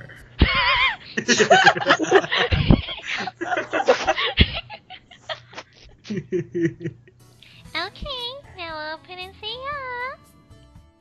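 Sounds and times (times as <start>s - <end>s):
people laughing and snickering: 0.0s - 7.2s.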